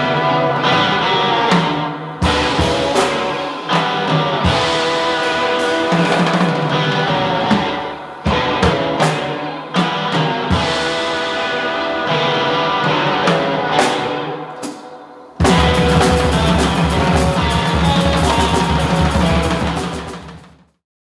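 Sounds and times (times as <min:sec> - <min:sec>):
guitar playing: 0:00.0 - 0:20.5
drum and cymbal hits: 0:01.5 - 0:11.3, 0:15.4 - 0:20.7
saxophone long notes: 0:15.4 - 0:20.2.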